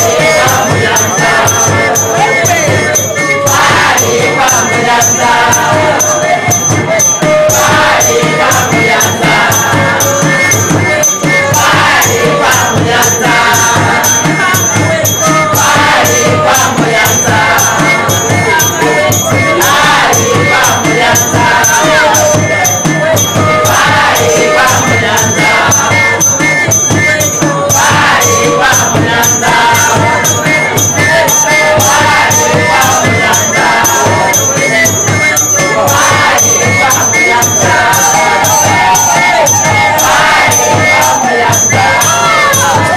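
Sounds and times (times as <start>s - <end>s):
driving percussion beat: 0.0s - 42.9s
group of people singing: 0.0s - 42.9s.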